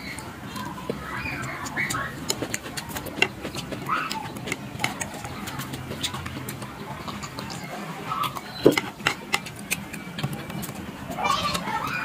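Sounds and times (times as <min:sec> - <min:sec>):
low background murmur: 0:00.0 - 0:12.0
chopsticks clicking on plate: 0:01.4 - 0:07.6, 0:08.3 - 0:10.8.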